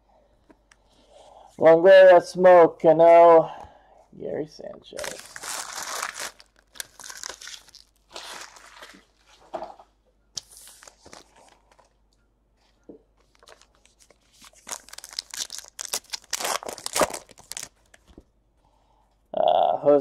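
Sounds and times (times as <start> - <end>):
wrapper tearing open: 5.0 - 9.0, 13.3 - 18.0
card pack wrapper crinkling: 5.0 - 9.3, 10.4 - 12.0, 13.2 - 18.1.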